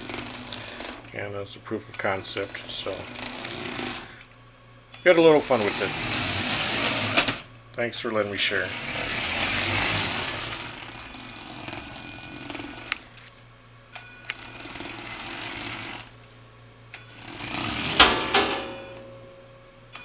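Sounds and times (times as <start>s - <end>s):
plastic wheels rolling on wood: 0.0s - 1.1s, 2.0s - 4.2s, 5.4s - 7.5s, 8.1s - 13.2s, 14.3s - 16.2s, 17.1s - 18.5s
small electric motors whirring: 0.0s - 1.1s, 1.9s - 4.3s, 5.4s - 7.5s, 8.2s - 13.4s, 14.2s - 16.2s, 17.0s - 18.2s.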